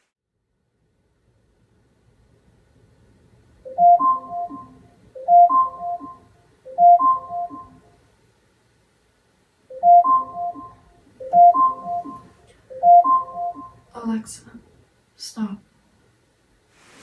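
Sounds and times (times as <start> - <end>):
phone alarm ringtone: 3.7 - 7.8, 9.7 - 13.8.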